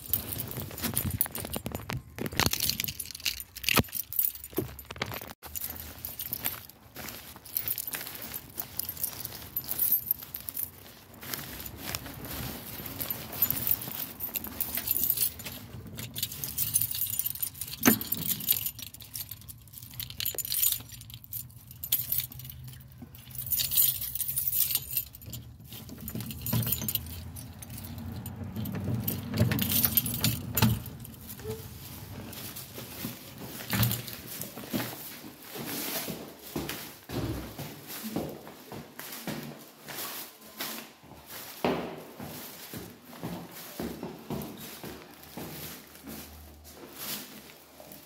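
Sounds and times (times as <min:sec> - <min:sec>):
key turning in metal door lock: 0:00.0 - 0:05.4, 0:13.1 - 0:34.6
plastic bag rustling: 0:00.0 - 0:36.5
keys jangling: 0:00.0 - 0:38.3, 0:42.2 - 0:48.0.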